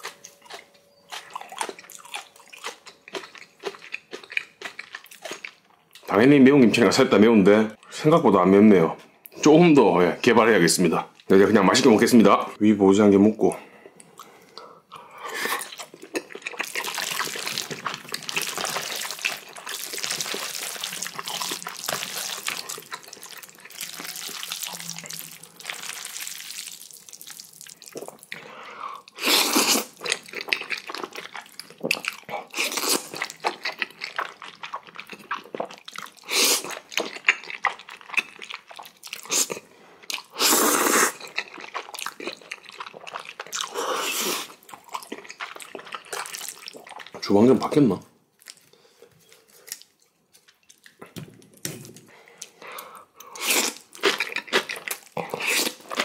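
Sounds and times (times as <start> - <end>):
chewing: 0.0 - 6.1, 14.0 - 47.2, 52.1 - 56.0.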